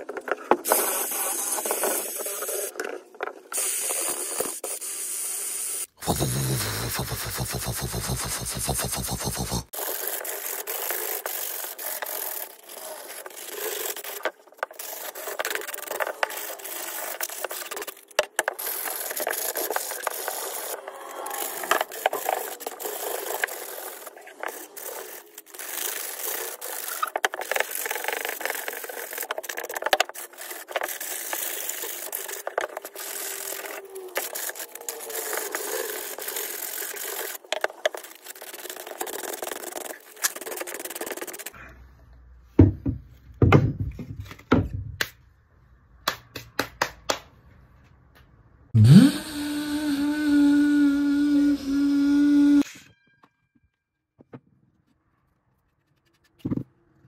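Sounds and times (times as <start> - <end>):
sandpaper rubbing on wood: 6.0 - 17.7.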